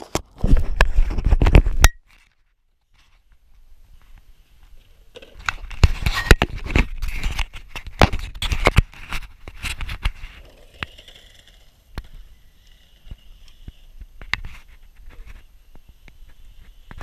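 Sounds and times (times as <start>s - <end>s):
skateboard rolling on concrete: 2.9s - 17.0s
wheels clicking over joints: 10.3s - 13.7s.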